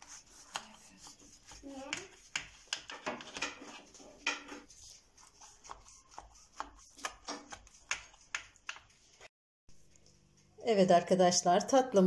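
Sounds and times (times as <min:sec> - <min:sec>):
knife cutting pastry: 0:04.6 - 0:09.0.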